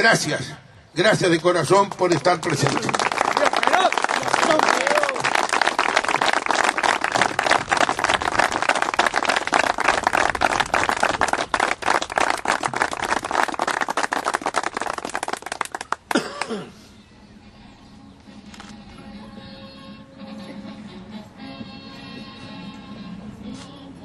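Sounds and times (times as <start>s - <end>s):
people clapping: 1.9s - 16.6s.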